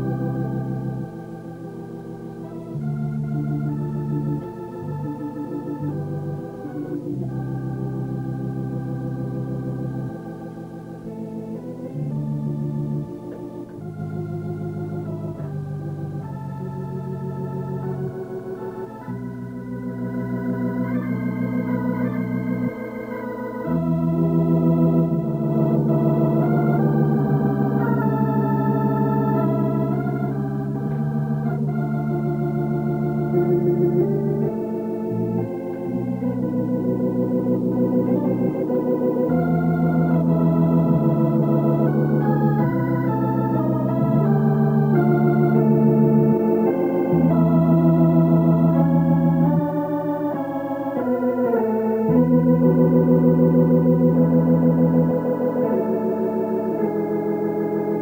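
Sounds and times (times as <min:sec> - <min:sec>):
slow background music: 0:00.0 - 0:58.0
deep bass notes: 0:23.6 - 0:50.4, 0:51.8 - 0:58.0.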